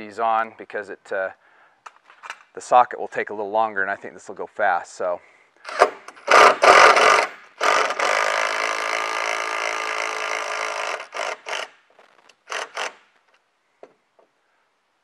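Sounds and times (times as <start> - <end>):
impact wrench driving screw: 5.6 - 13.2.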